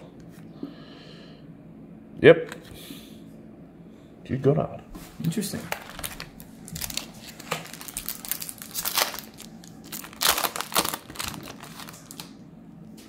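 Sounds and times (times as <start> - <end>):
foil pack crinkling: 5.6 - 12.4.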